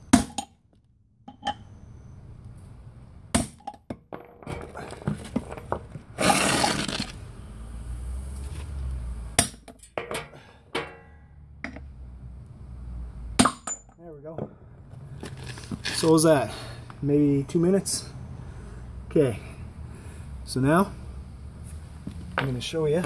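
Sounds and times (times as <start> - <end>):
metal hub scraping and rattling: 4.1 - 7.1
hammer striking metal: 9.4 - 11.8.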